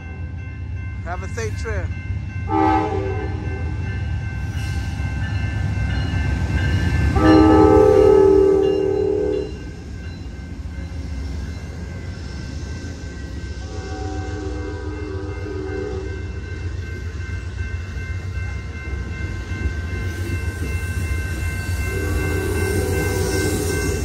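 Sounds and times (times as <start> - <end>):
train air horn blasts: 2.5 - 3.7, 7.2 - 9.6, 13.6 - 16.3, 21.9 - 23.9.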